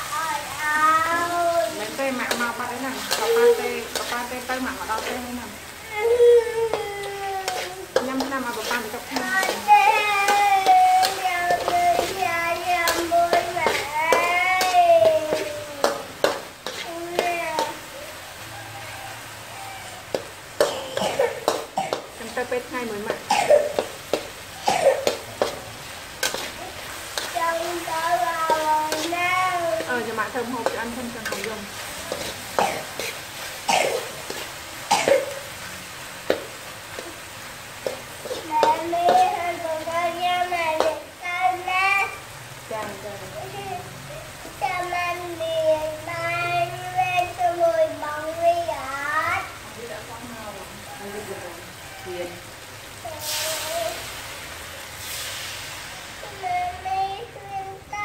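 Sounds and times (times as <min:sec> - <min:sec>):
oil sizzling: 0:00.0 - 0:58.0
person speaking: 0:01.1 - 0:05.6, 0:06.4 - 0:16.1
metal spatula scraping a wok: 0:07.1 - 0:17.7, 0:25.1 - 0:34.6.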